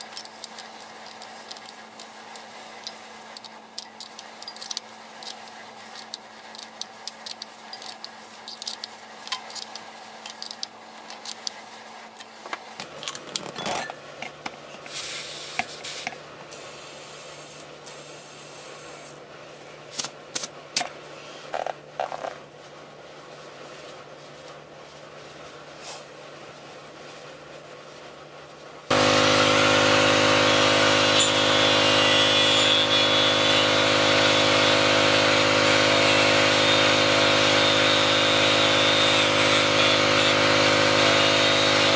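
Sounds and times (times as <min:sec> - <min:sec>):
air hissing into tyre: 0:14.9 - 0:19.1.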